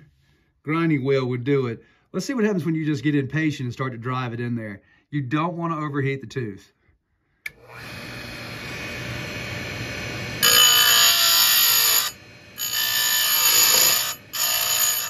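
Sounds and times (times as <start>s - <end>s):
grinder motor running: 7.6s - 15.0s
grinding wheel rasping on chain: 10.4s - 15.0s.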